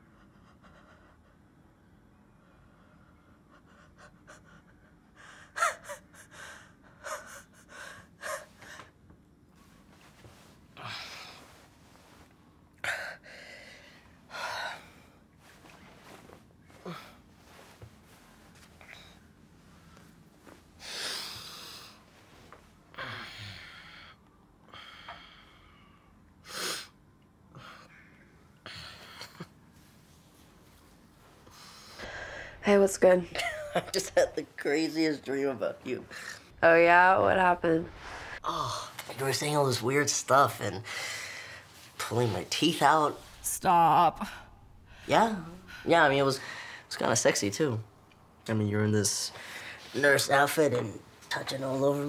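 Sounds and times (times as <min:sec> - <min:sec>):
man breathing heavily and sniffing: 0:10.1 - 0:22.3.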